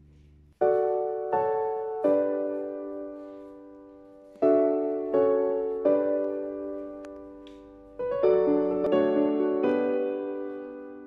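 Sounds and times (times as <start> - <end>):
slow piano chords: 0.0 - 11.0.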